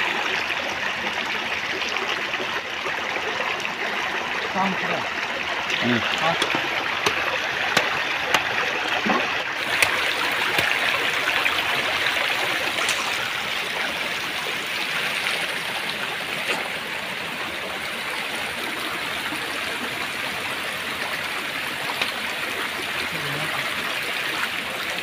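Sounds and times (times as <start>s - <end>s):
stream rushing over stones: 0.0s - 25.0s
knife chopping on wooden board: 6.3s - 8.5s.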